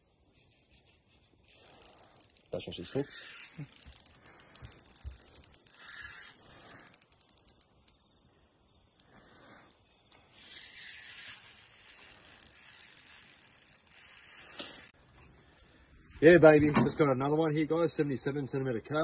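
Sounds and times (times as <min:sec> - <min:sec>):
fishing reel clicking: 0:01.4 - 0:15.0.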